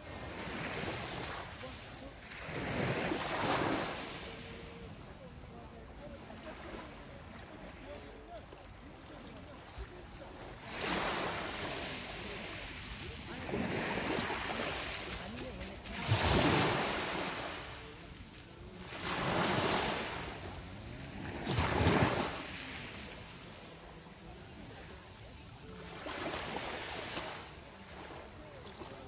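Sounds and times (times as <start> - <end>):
waves breaking on pebble beach: 10.6 - 17.8, 18.9 - 23.0.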